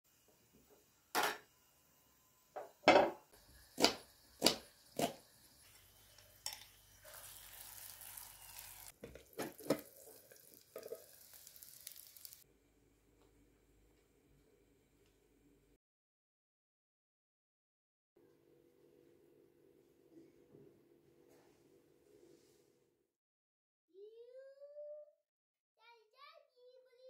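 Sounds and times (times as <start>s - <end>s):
frying sizzle: 2.6s - 12.5s.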